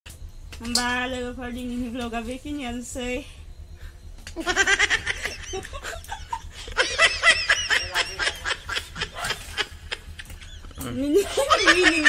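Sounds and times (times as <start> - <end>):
woman giggling: 4.4 - 12.0.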